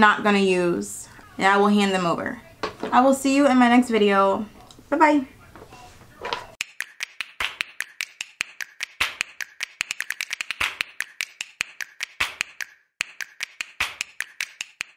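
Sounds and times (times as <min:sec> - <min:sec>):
rapid sharp pops: 0:06.6 - 0:14.9.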